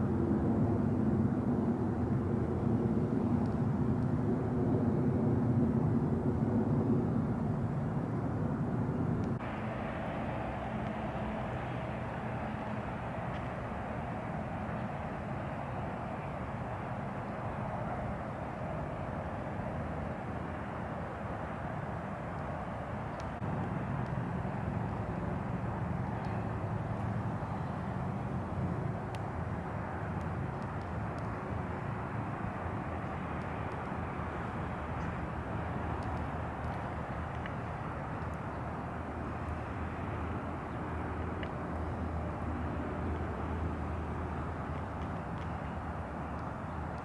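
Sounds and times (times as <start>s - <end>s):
low mechanical hum: 0.0s - 47.0s
outdoor background noise: 0.0s - 47.0s
faint clicks: 23.1s - 24.2s, 30.1s - 31.4s, 35.9s - 38.6s, 44.6s - 45.6s.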